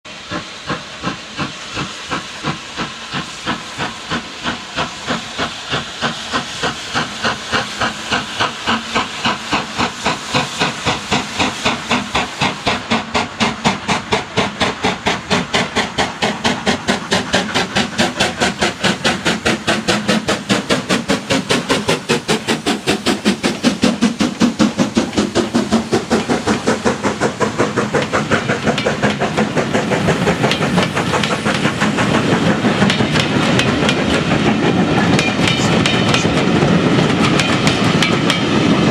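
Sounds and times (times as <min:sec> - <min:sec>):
steam locomotive exhaust beats: 0:00.1 - 0:38.9
train coaches rolling past: 0:00.1 - 0:38.9.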